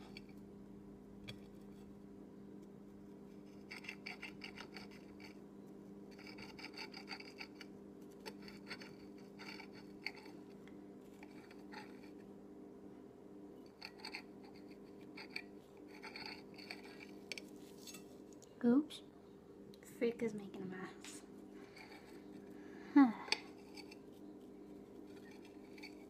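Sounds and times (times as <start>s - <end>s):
steady low hum: 0.0s - 26.0s
knife scraping on plate: 3.4s - 5.4s, 6.1s - 10.4s, 11.2s - 12.2s, 13.7s - 18.1s, 21.6s - 22.4s, 23.3s - 26.0s.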